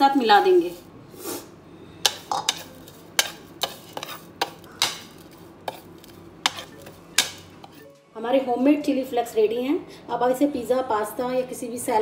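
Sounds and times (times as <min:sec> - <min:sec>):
spoon scraping a plate: 0:02.0 - 0:07.9.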